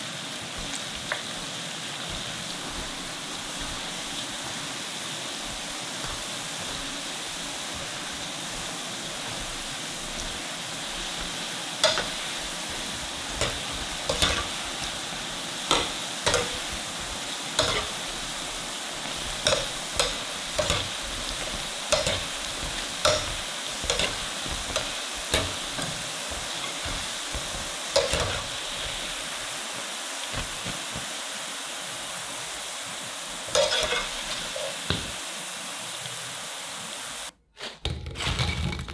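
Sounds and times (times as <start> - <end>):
deep-frying sizzle in oil: 0.0 - 37.3
wire skimmer clinking against pan: 19.4 - 28.5.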